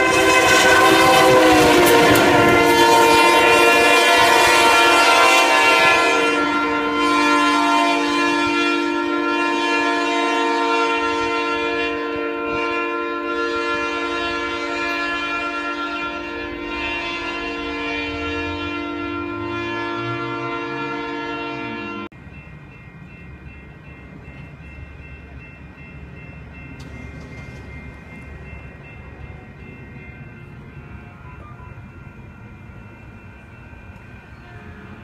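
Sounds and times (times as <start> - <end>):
locomotive air horn chord: 0.0 - 22.1, 34.3 - 35.0.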